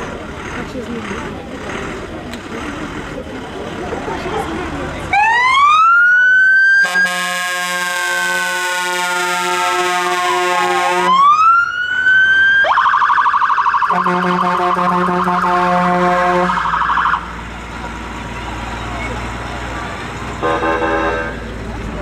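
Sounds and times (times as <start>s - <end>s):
fire engine siren: 5.1s - 17.7s
fire engine horn blast: 6.8s - 11.3s, 13.9s - 16.8s, 20.4s - 21.5s.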